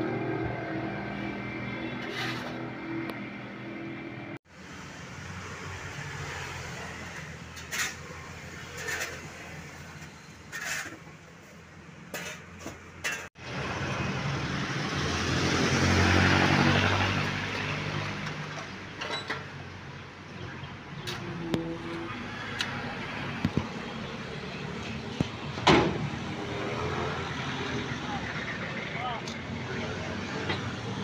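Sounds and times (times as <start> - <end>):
vehicle passing: 13.4 - 18.8, 21.0 - 31.0.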